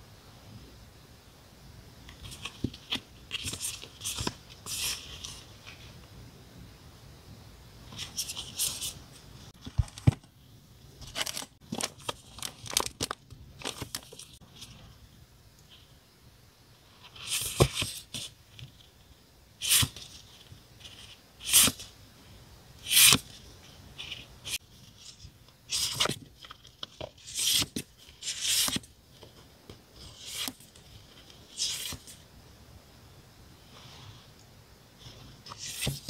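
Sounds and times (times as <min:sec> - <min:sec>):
paper rustling: 0:02.1 - 0:05.9, 0:07.9 - 0:10.3, 0:11.0 - 0:14.9, 0:22.8 - 0:32.2, 0:35.0 - 0:36.0
paper rustling and tearing: 0:11.0 - 0:14.4, 0:35.3 - 0:36.0.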